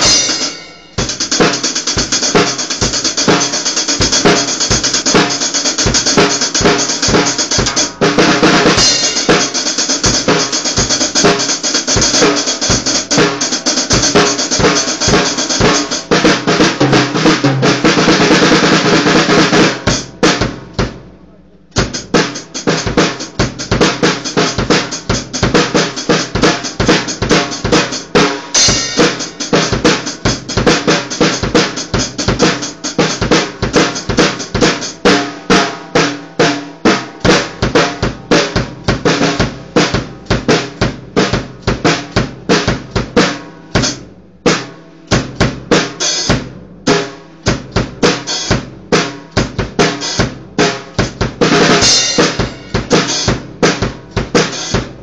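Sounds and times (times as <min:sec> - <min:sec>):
cymbal crash: 0:00.0 - 0:01.1
drum kit groove: 0:00.0 - 0:55.0.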